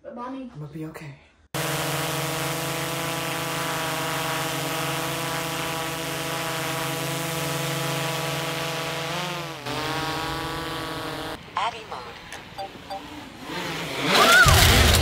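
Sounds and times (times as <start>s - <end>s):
drone propellers buzzing: 1.6s - 11.4s.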